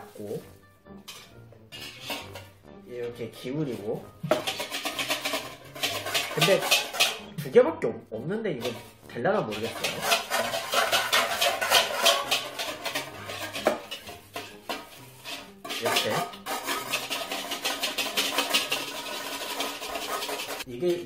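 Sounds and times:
whisk clattering in metal bowl: 0:01.1 - 0:02.5, 0:04.2 - 0:07.3, 0:09.5 - 0:20.7.

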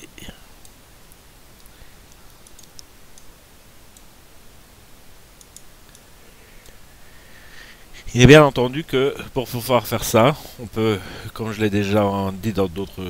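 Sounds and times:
low background hiss: 0:00.0 - 0:13.0
computer mouse clicks: 0:01.6 - 0:03.3, 0:05.4 - 0:06.8.

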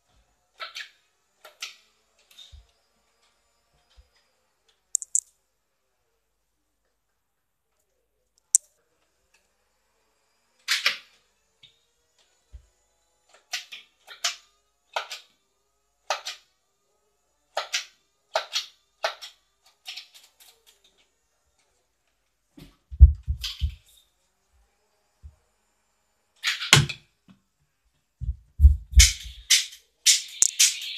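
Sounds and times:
sharp click: 0:05.0 - 0:05.2
toy dart blaster firing: 0:29.0 - 0:30.9.

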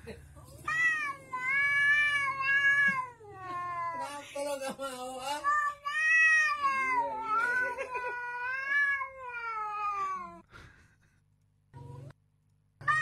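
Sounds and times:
cat meowing: 0:00.5 - 0:04.2, 0:05.3 - 0:10.4.

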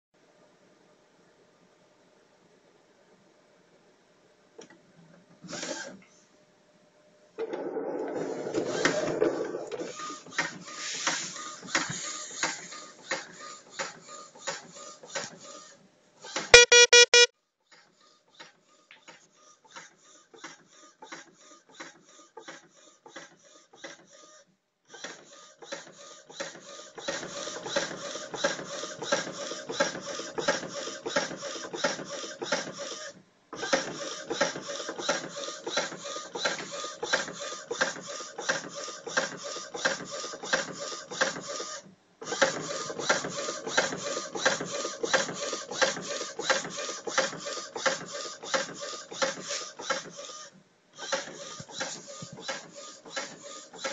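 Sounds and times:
loud pitched beeps: 0:16.6 - 0:17.3.

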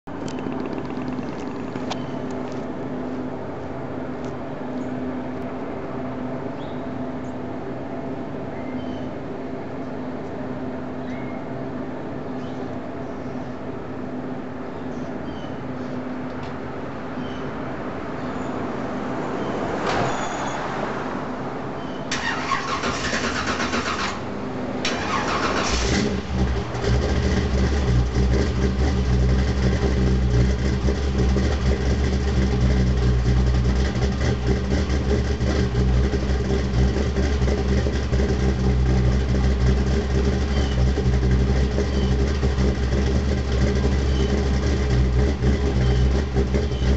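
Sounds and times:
car engine idling: 0:00.0 - 0:04.2, 0:22.1 - 0:46.9.

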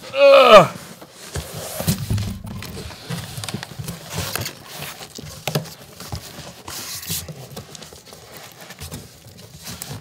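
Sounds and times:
cardboard sliding on cardboard: 0:00.8 - 0:05.1
cardboard box knocks and thumps: 0:01.3 - 0:04.6.

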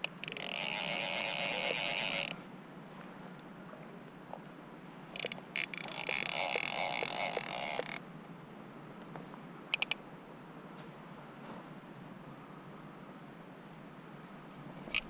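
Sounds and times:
fly reel drag buzzing: 0:00.0 - 0:02.5, 0:05.1 - 0:08.0.

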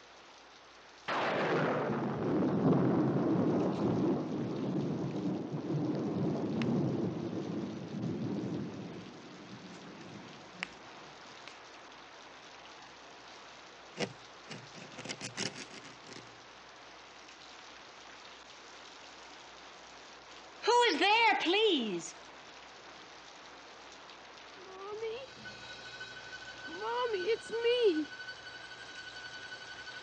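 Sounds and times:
steady rain: 0:00.0 - 0:30.0
thunder rumbling: 0:01.1 - 0:10.9.

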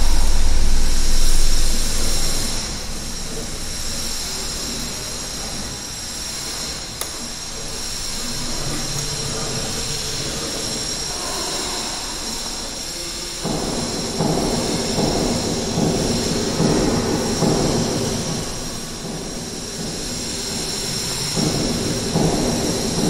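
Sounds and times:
low rumble: 0:00.0 - 0:05.8
room noise hiss: 0:00.0 - 0:23.0.

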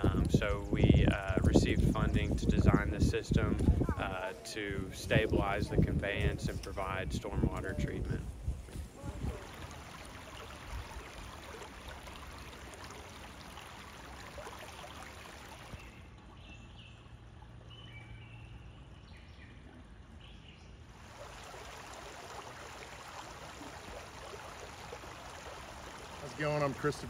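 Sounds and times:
creek water babbling over stones: 0:08.9 - 0:16.3, 0:20.9 - 0:27.0.

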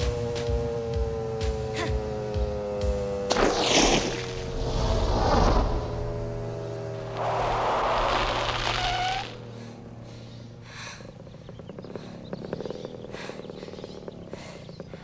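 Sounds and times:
dirt bike engine idling: 0:00.0 - 0:03.3, 0:08.9 - 0:15.0
dirt bike skidding: 0:03.3 - 0:09.6.

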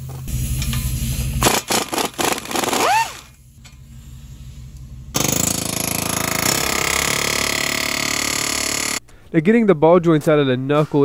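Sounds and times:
impact wrench hammering: 0:01.4 - 0:03.2, 0:05.2 - 0:09.0.

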